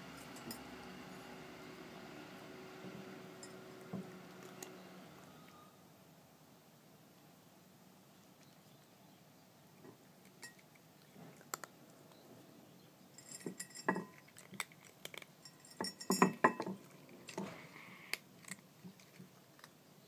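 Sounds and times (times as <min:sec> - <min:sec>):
cat crunching dry food: 0:03.4 - 0:05.3, 0:10.0 - 0:12.1, 0:13.2 - 0:20.0
kibble clinking against ceramic dish: 0:10.2 - 0:10.8, 0:13.2 - 0:17.6.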